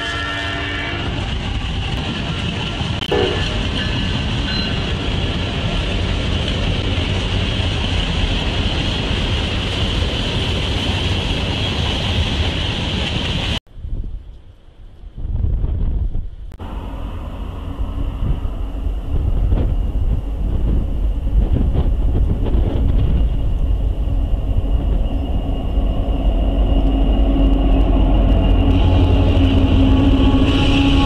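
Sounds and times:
diesel locomotive engine rumble: 0:00.0 - 0:31.0
steady whine: 0:16.5 - 0:31.0.

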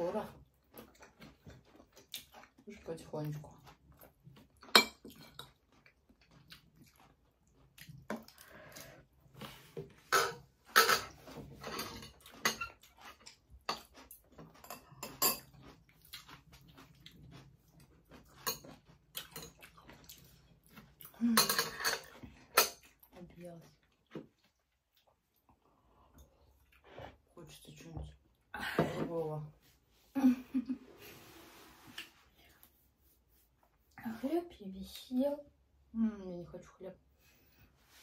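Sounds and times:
chewing: 0:00.4 - 0:09.7, 0:11.1 - 0:27.2.

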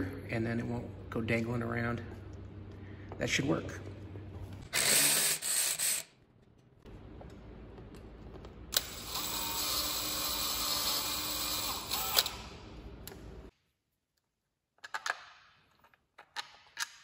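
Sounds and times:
cordless drill running: 0:04.7 - 0:06.0, 0:08.8 - 0:12.6
cordless driver whirring: 0:08.7 - 0:12.7.

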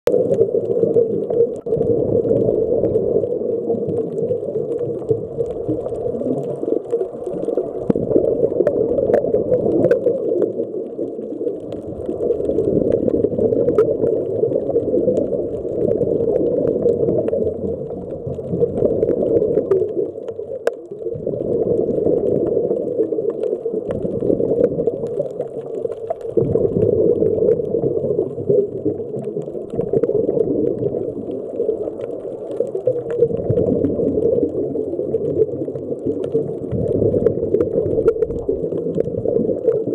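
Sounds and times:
underwater regulator bubbles: 0:00.1 - 0:39.9
underwater rushing water: 0:00.1 - 0:39.9
faint clicks: 0:03.9 - 0:31.0.

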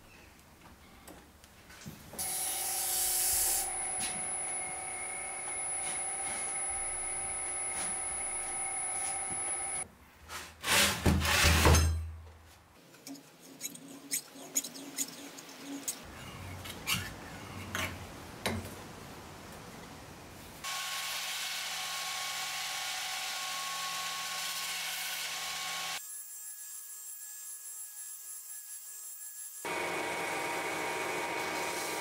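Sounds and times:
electric motor humming: 0:03.4 - 0:09.8
belt grinder whining: 0:03.5 - 0:09.8.

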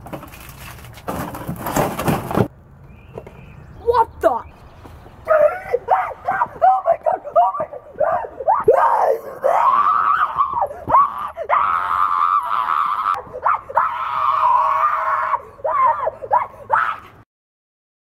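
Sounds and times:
boy yelping: 0:05.3 - 0:17.1
boy screaming: 0:05.3 - 0:17.2.

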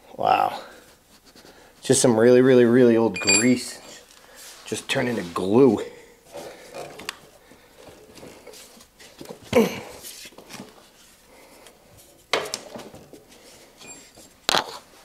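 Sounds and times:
rubbing and scraping: 0:03.8 - 0:06.7.

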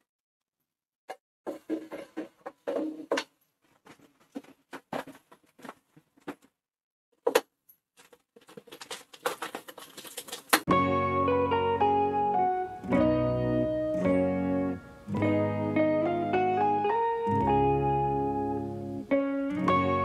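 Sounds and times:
plastic bag crinkling: 0:08.4 - 0:10.7.

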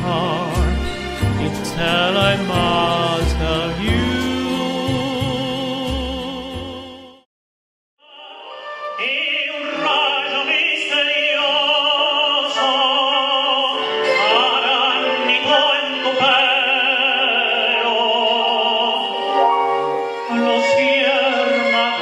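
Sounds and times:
instrumental backing: 0:00.0 - 0:07.0, 0:13.6 - 0:22.0
man singing operatically: 0:00.0 - 0:07.3, 0:08.0 - 0:22.0.

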